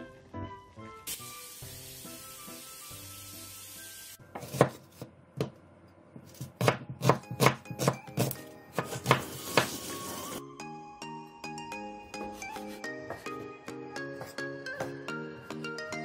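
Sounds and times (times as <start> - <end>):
light background music: 0.0 - 4.8, 6.4 - 16.0
steady hiss: 1.0 - 4.2
cleaver chopping on wooden board: 6.3 - 9.7.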